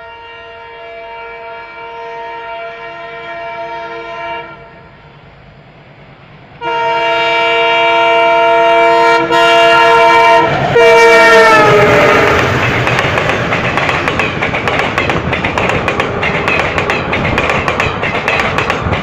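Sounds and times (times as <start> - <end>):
locomotive horn blasts: 0.0 - 5.0, 6.6 - 12.6
rush of passing train: 0.0 - 19.0.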